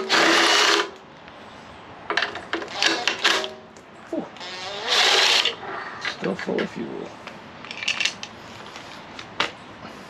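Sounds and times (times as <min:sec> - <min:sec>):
cordless power tool bursts: 0:00.0 - 0:01.0, 0:02.6 - 0:03.6, 0:04.4 - 0:05.6.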